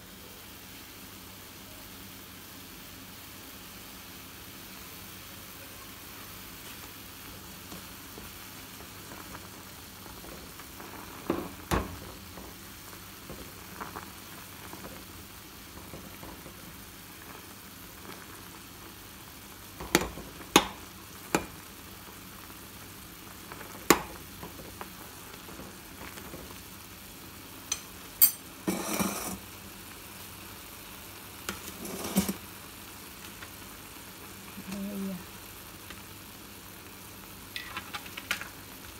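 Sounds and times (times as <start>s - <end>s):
noodles boiling in a pot: 0.0s - 38.9s
ladle scraping pot: 28.6s - 29.4s, 31.5s - 32.4s.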